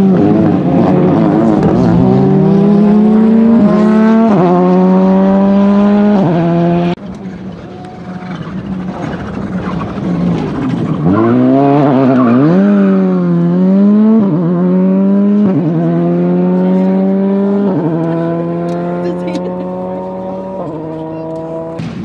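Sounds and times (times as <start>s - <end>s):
rally car engine accelerating: 0.0s - 22.0s.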